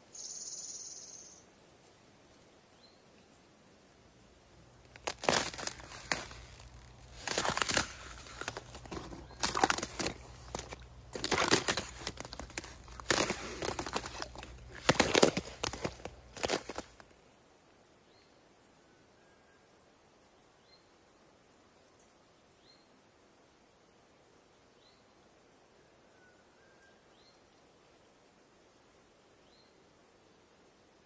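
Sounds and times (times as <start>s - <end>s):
boot crunching thin ice: 4.7s - 17.1s.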